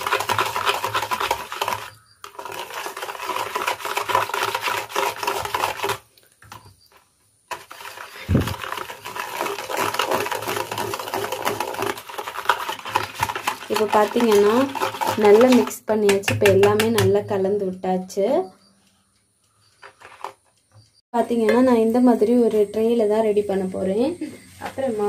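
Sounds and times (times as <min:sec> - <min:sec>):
wire whisk beating batter: 0:00.0 - 0:06.6, 0:07.5 - 0:17.5.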